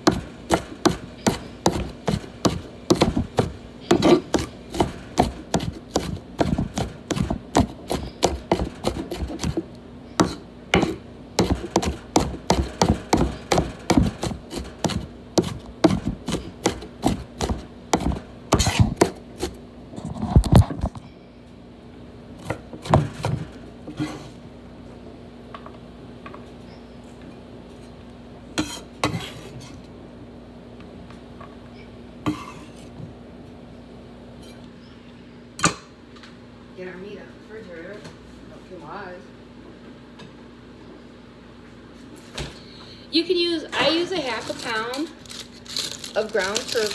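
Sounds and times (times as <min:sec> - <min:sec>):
knife chopping on wooden board: 0:00.0 - 0:09.6, 0:10.2 - 0:19.6, 0:22.4 - 0:23.4.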